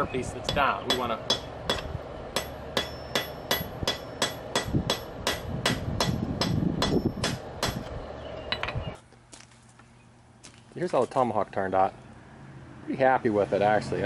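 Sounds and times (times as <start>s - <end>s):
hammer striking metal on anvil: 0.0s - 7.9s.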